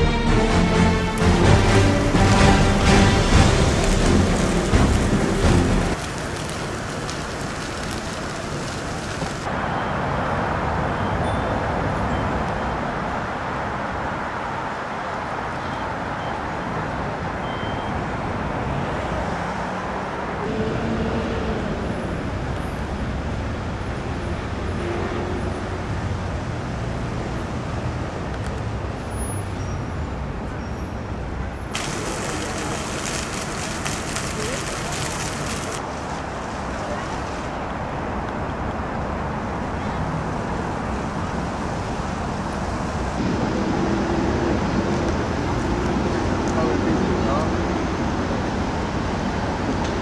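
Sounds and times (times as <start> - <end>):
road traffic noise: 0.0 - 50.0
vehicle passing: 0.6 - 9.5, 18.7 - 28.0.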